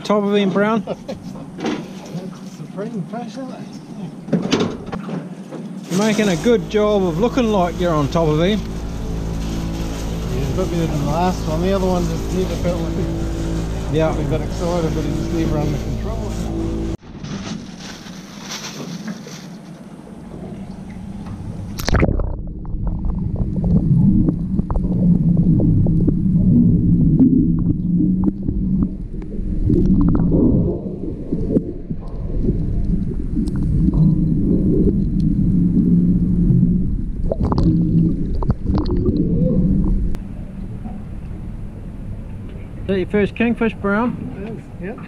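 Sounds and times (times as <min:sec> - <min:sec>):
muffled underwater rumble: 0:05.8 - 0:17.0, 0:18.7 - 0:43.2.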